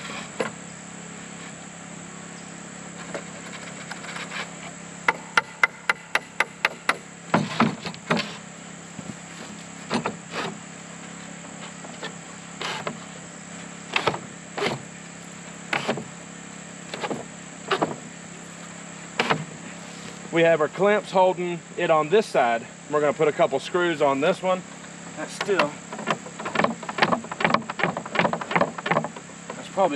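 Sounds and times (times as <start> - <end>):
high insect drone: 0.0 - 29.9
wooden boards knocking: 25.4 - 29.2.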